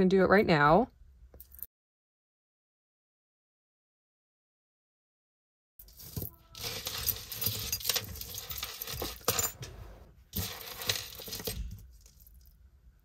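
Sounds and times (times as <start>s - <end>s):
jewelry clinking and jingling: 1.4s - 1.7s, 5.8s - 12.6s.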